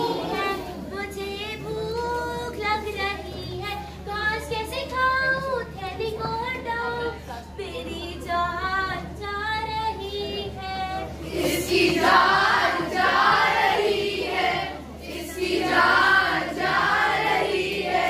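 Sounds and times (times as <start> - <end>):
children singing in chorus: 11.2 - 18.0.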